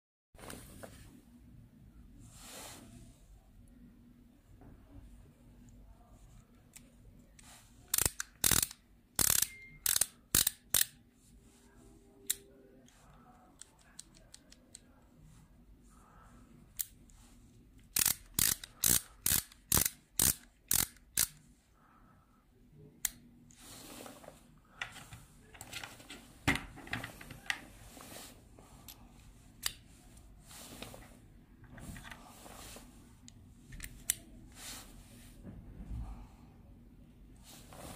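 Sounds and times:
ratchet screwdriver clicking: 7.9 - 11.0, 17.9 - 21.4.

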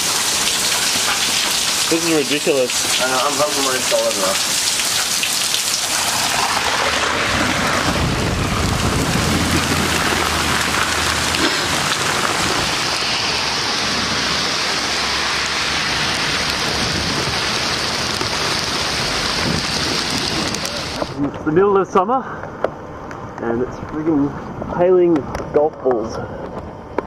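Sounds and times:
heavy rain and hail: 0.0 - 21.2
low rumble: 5.9 - 21.5.

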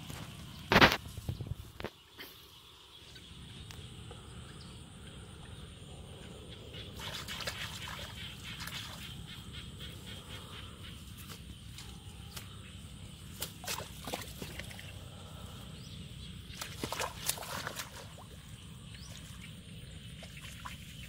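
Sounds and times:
grass and straw rustling: 0.0 - 2.5, 7.0 - 15.0
steady low rumble: 3.2 - 7.1.

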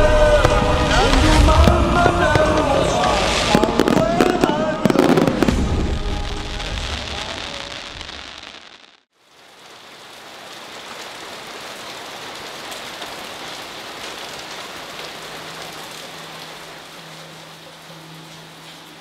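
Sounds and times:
steady rain falling: 0.0 - 19.0
low sustained musical tone: 15.3 - 19.0.

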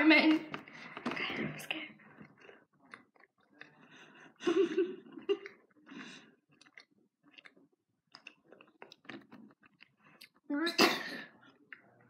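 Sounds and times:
person breathing: 0.6 - 2.6, 3.8 - 4.7
person chewing: 2.0 - 10.5.

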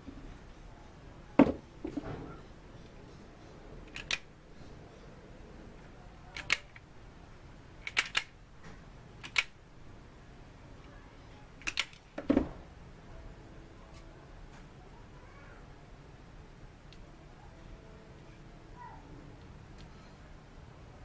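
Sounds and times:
wire stripper jaws clicking: 3.9 - 4.3, 7.8 - 8.4, 9.2 - 9.6, 11.6 - 12.0.

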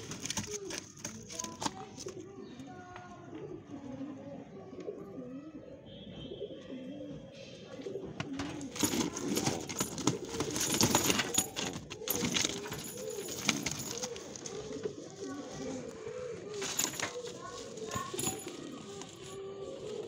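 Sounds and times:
birds rustling in wire cage: 0.0 - 2.2, 7.9 - 20.0
pigeons cooing: 0.0 - 20.0.

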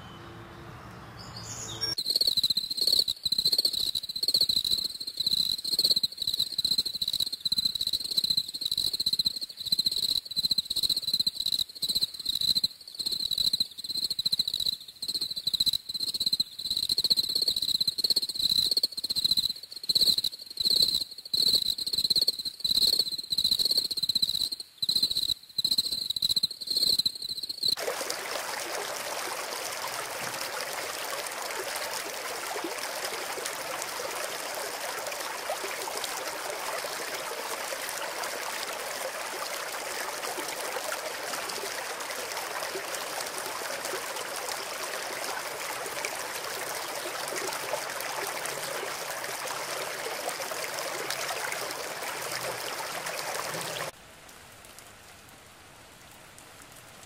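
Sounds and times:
running water rushing: 27.8 - 54.0.

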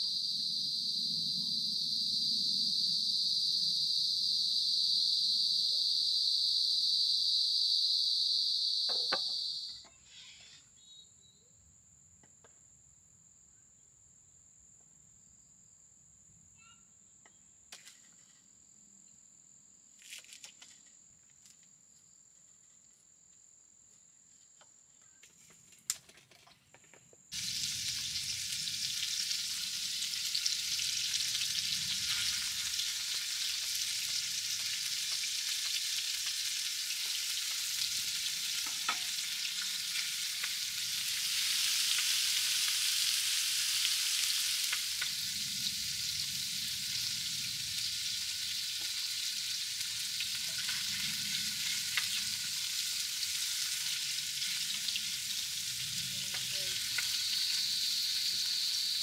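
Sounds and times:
meat and tofu sizzling on griddle: 0.0 - 9.5, 27.3 - 59.0.

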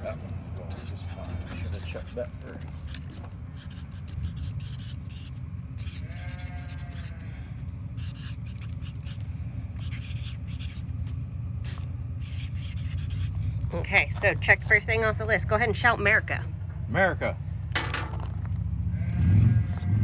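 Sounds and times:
marker scratching on cardboard: 0.0 - 7.2, 7.9 - 13.5, 19.6 - 20.0.

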